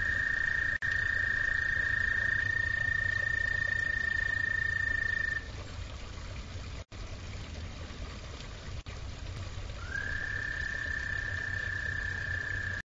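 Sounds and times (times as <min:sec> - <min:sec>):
frog trilling: 0:00.0 - 0:05.5, 0:09.8 - 0:12.8
low hum and hiss: 0:00.0 - 0:12.8.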